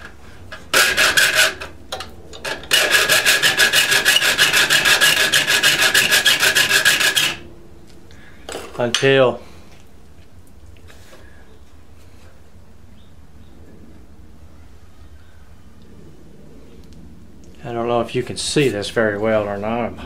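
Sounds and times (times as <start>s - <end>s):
file rasping on saw teeth: 0.7s - 1.7s, 2.7s - 7.4s.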